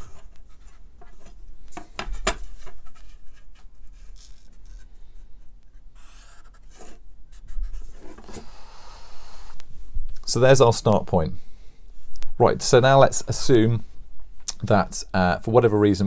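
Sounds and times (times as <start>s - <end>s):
marker pen scratching on paper: 5.7s - 8.5s.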